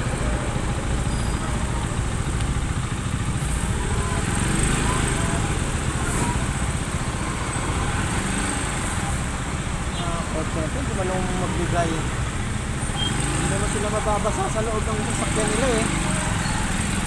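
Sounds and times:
motorcycle engine running: 0:00.0 - 0:09.8
road and wind noise: 0:00.0 - 0:17.0.

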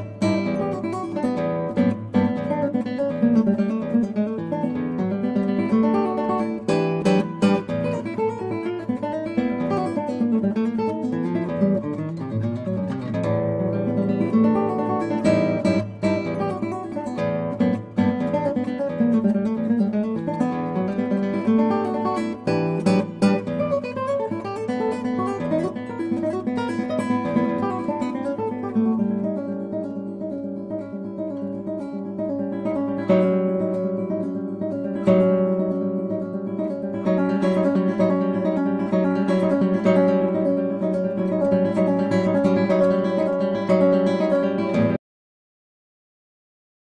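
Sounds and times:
acoustic guitar music: 0:00.0 - 0:45.0.

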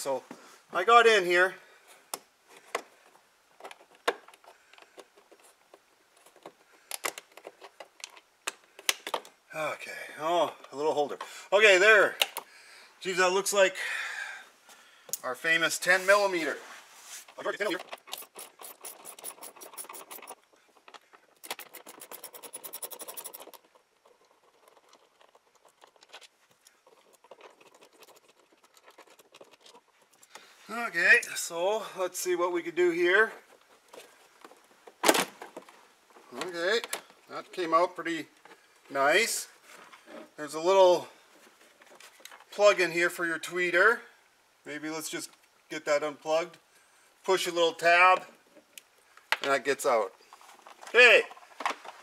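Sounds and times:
socket ratchet clicking rapidly: 0:18.0 - 0:20.4, 0:21.4 - 0:23.6.

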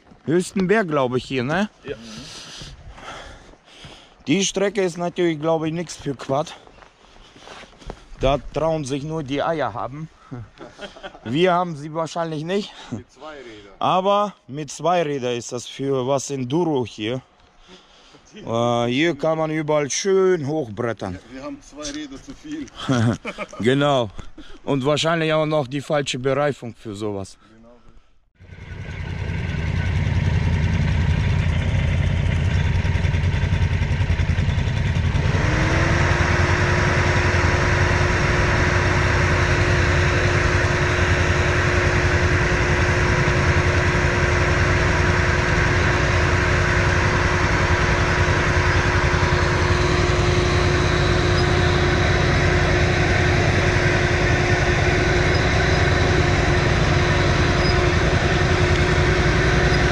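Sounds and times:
atv engine running: 0:28.4 - 0:59.9.

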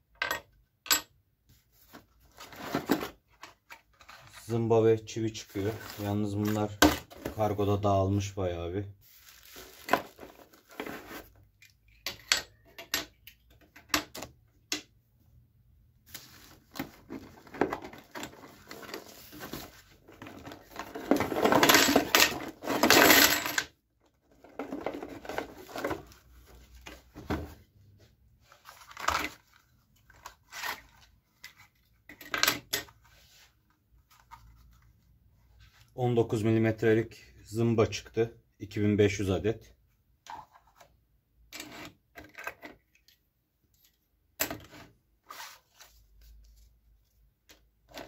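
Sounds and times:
cardboard rustling and scraping: 0:01.6 - 0:07.6, 0:09.0 - 0:11.4, 0:16.1 - 0:22.9, 0:24.4 - 0:31.8, 0:44.7 - 0:46.8.

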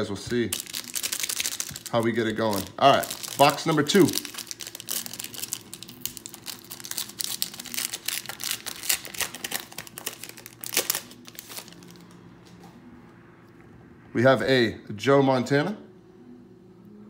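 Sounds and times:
foil wrapper crinkling: 0:00.3 - 0:12.1.

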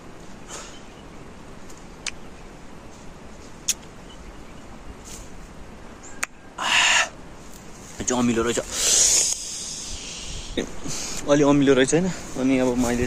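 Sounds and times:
background hiss: 0:00.0 - 0:13.0
breath hissing through teeth: 0:08.7 - 0:11.2.

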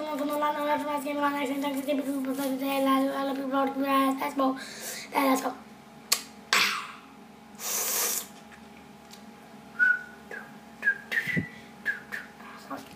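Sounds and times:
heavy breathing out: 0:04.6 - 0:05.1.

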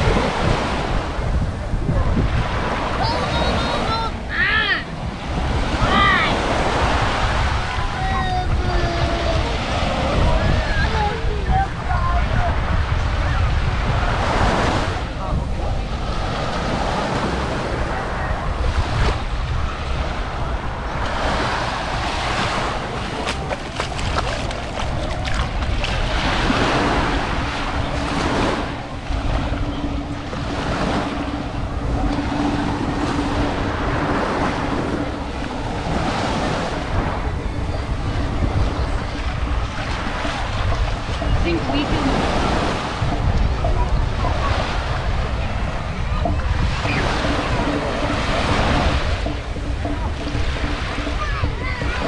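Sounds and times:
sea waves breaking: 0:00.0 - 0:52.0
steady low hum: 0:00.0 - 0:52.0
wind buffeting microphone: 0:00.0 - 0:52.0.

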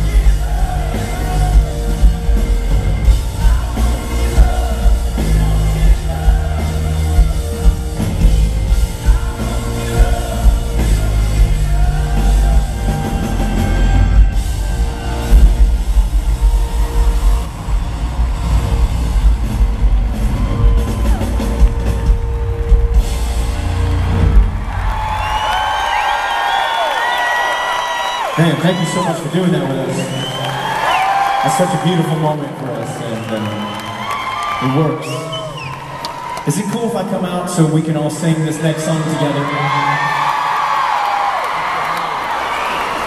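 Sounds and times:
man singing: 0:00.0 - 0:02.4, 0:03.2 - 0:07.7, 0:08.9 - 0:14.0
live pop-rock band: 0:00.0 - 0:36.4.

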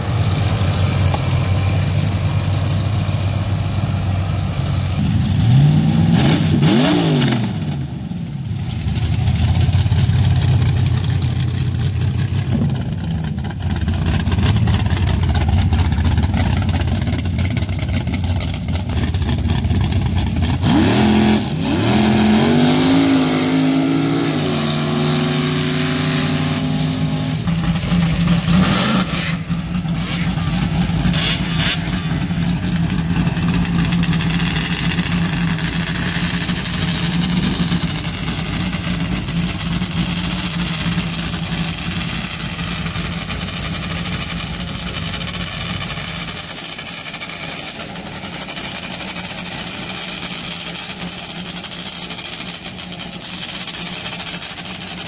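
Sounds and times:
race car engine running steadily: 0:00.0 - 0:55.0
race car engine revving: 0:04.9 - 0:08.0, 0:08.6 - 0:55.0.

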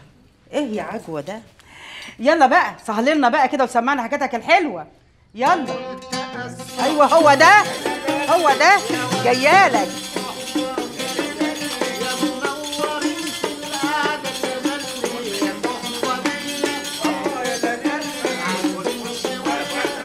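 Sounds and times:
oud plucking a melody: 0:05.6 - 0:10.3
tambourine jingling: 0:06.4 - 0:20.0.

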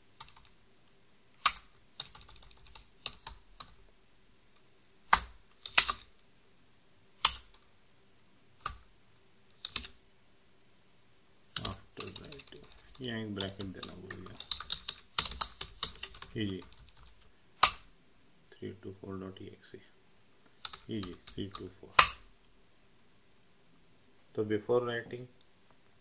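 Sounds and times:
computer keyboard typing: 0:00.1 - 0:00.6, 0:01.4 - 0:03.8, 0:05.1 - 0:06.1, 0:09.6 - 0:10.0, 0:11.6 - 0:17.8, 0:20.6 - 0:22.1.

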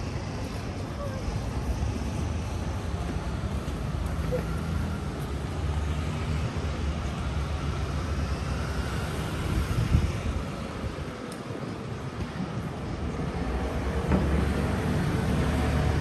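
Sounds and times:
passing vehicles rumble: 0:00.0 - 0:16.0.

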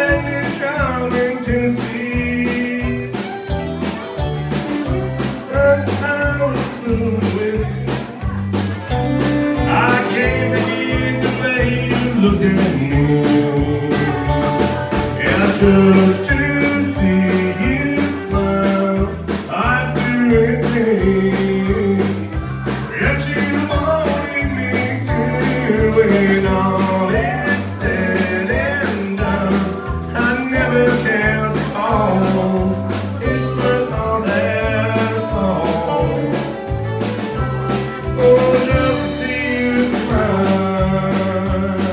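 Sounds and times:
country band playing: 0:00.0 - 0:41.9
fiddle: 0:07.6 - 0:12.3.

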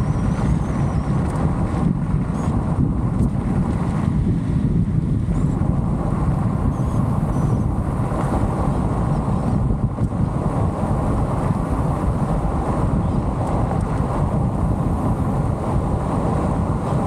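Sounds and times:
car road rumble: 0:00.0 - 0:17.0
wind noise: 0:00.0 - 0:17.0.

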